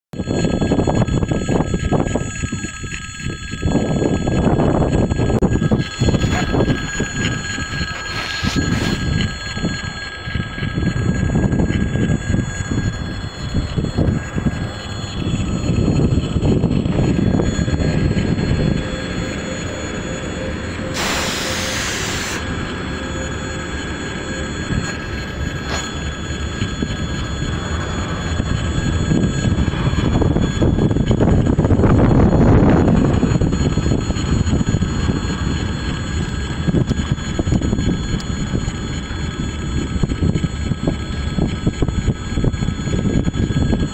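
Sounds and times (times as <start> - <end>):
uneven low rumble: 0.2 - 43.9
level crossing warning bell ringing: 5.6 - 33.1.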